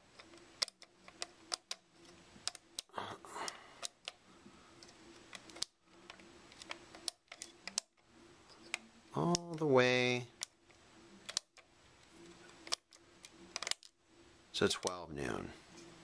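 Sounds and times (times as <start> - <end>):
timer pegs clicking: 8.7 - 10.6, 11.2 - 11.7.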